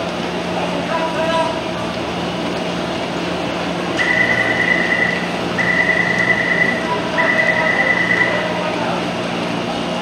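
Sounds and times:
steady low hum: 0.0s - 10.0s
high electronic beeps: 4.0s - 8.4s
crowd chatter: 5.6s - 10.0s.

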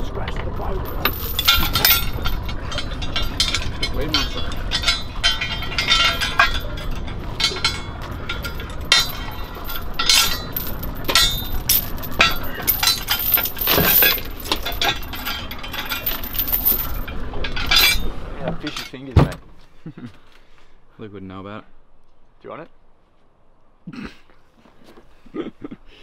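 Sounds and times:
anchor chain clanking: 0.2s - 19.4s.

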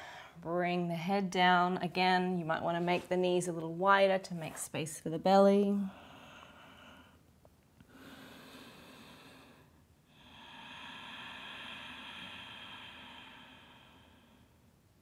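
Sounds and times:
woman breathing deeply: 0.0s - 0.4s, 5.9s - 14.8s.

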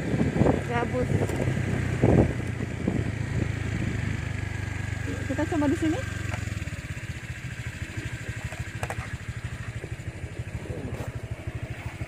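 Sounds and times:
small motorcycle engine running: 0.0s - 12.0s.

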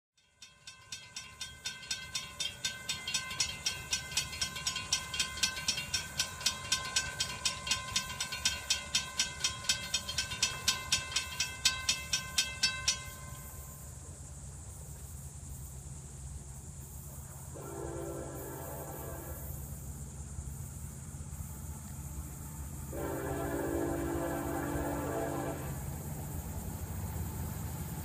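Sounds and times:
crossing warning bell ringing: 0.2s - 14.0s, 22.9s - 28.0s.

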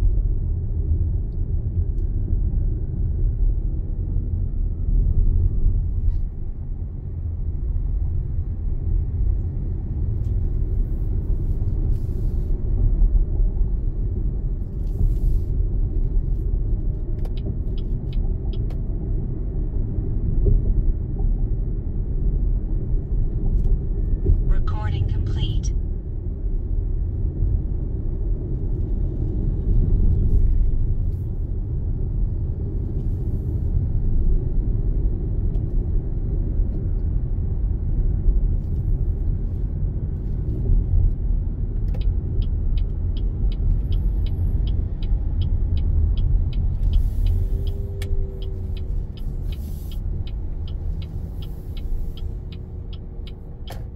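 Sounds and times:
car road and engine rumble: 0.0s - 53.9s
turn signal ticking: 17.1s - 18.8s, 41.7s - 53.9s.

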